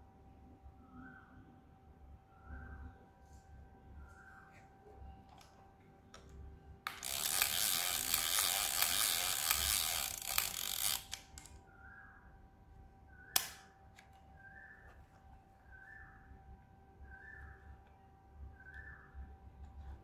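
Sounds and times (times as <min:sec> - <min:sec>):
camera mechanism ratcheting: 0:06.9 - 0:11.6
sharp camera click: 0:13.4 - 0:13.7.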